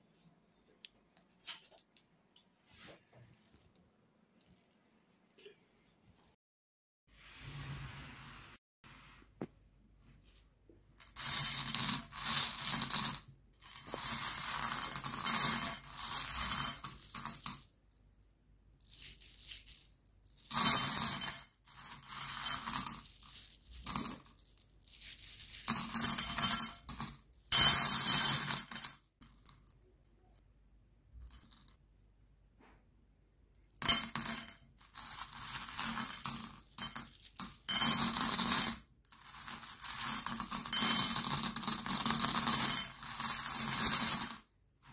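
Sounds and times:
candy clattering on a plate: 11.0s - 17.8s, 18.8s - 29.9s, 33.6s - 44.9s.

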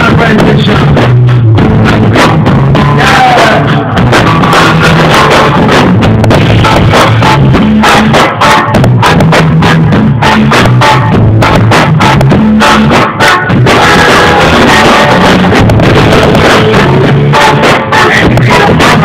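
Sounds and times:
drum hits: 0.0s - 19.0s
live band music: 0.0s - 19.0s.

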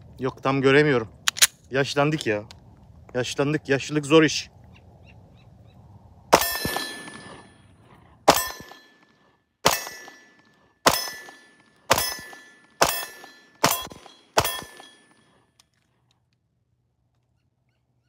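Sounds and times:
pistol shots: 6.3s - 7.5s, 8.3s - 15.2s
metallic ring of steel target: 6.3s - 15.4s.

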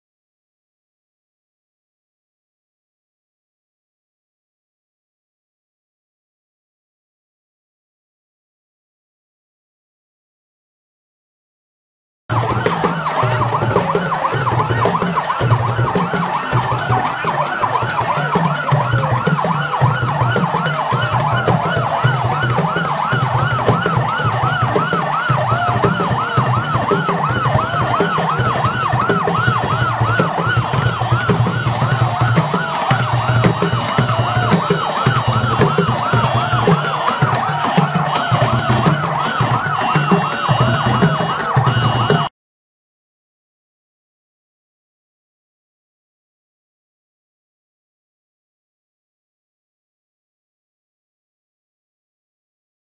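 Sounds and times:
crowd noise: 12.3s - 42.3s
electronic siren yelping: 12.3s - 42.3s.

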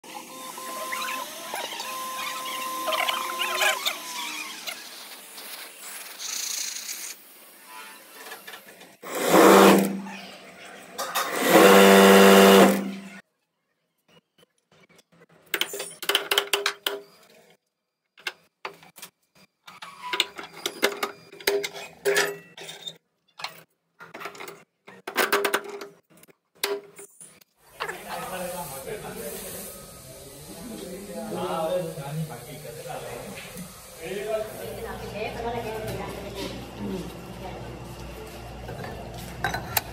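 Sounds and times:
electric motor humming: 0.1s - 5.0s, 11.3s - 13.2s.

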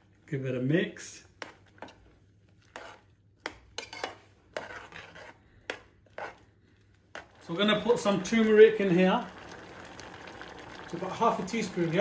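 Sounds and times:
metal spoon scraping a saucepan: 2.6s - 3.1s, 3.8s - 6.5s.

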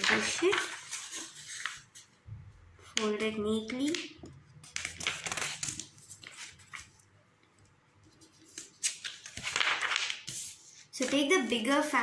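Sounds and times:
paper rustling as it is folded: 0.0s - 2.2s, 2.9s - 7.0s, 8.0s - 12.0s.

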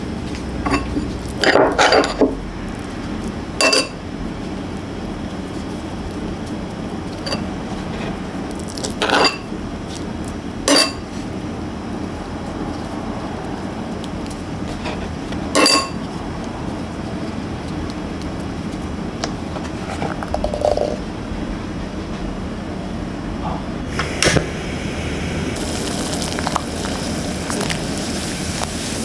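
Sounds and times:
steady background hum: 0.0s - 29.0s
metal spatula clinking on bowl: 15.6s - 16.0s.

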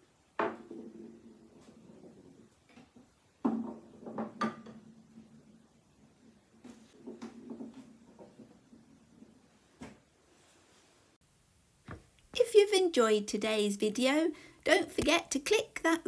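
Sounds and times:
wooden ball rolling rumble: 0.2s - 10.1s
wooden ball knocking on desk: 3.4s - 4.8s.

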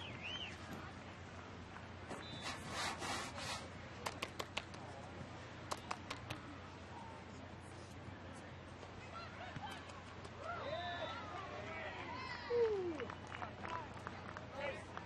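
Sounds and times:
sharp claps: 4.0s - 4.8s, 5.7s - 6.4s.

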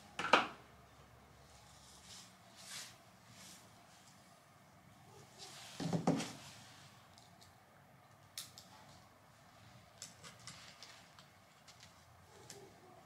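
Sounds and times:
rustle and knock: 5.3s - 6.7s.

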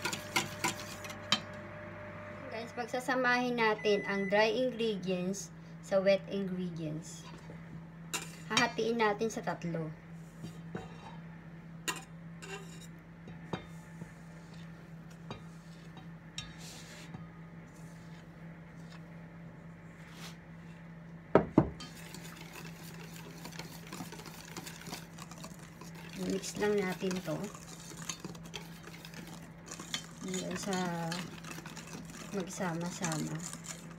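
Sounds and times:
whisk stirring batter: 0.0s - 1.4s, 13.8s - 19.2s, 21.8s - 33.9s
metal bowls and whisk clinking: 0.0s - 1.6s, 21.8s - 33.9s
steady low hum: 0.0s - 33.9s.

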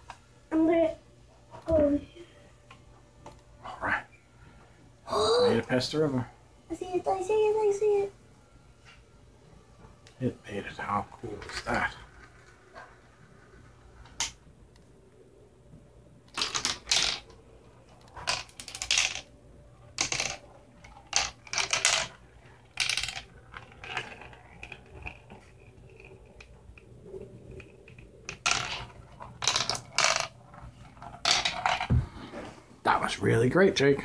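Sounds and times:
marbles clattering through plastic run: 16.3s - 17.4s, 18.0s - 19.3s, 19.9s - 32.0s.

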